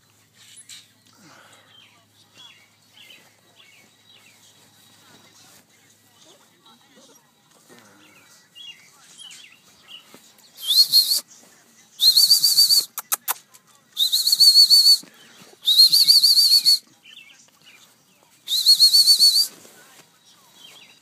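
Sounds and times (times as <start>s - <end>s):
person whistling: 10.6s - 11.2s, 12.0s - 12.9s, 14.0s - 15.0s, 15.6s - 16.8s, 18.5s - 19.5s.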